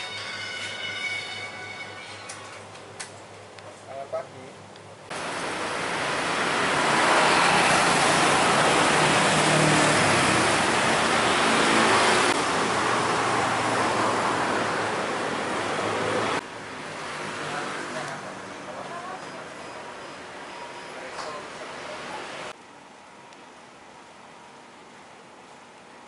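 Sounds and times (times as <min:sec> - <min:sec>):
street traffic rushing past: 0:05.1 - 0:22.6.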